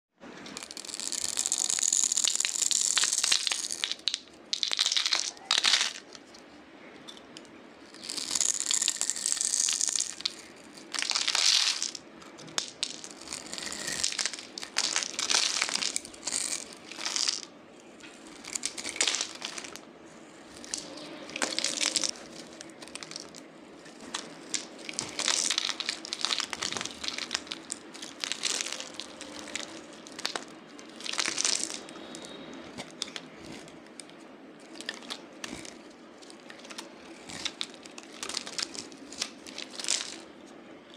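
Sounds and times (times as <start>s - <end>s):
knife scraping soap: 0.6s - 3.8s, 8.0s - 10.8s, 13.1s - 14.0s.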